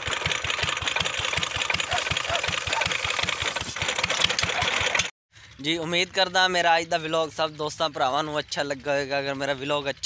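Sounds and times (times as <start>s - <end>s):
stationary engine running: 0.0s - 5.1s
clattering mechanical noise: 0.0s - 10.0s.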